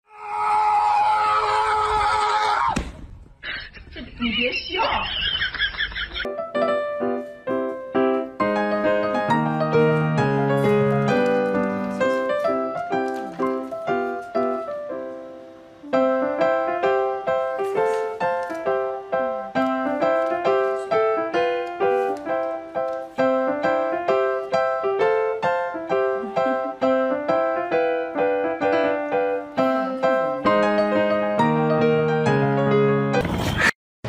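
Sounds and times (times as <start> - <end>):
quick piano tune: 6.2 - 33.2.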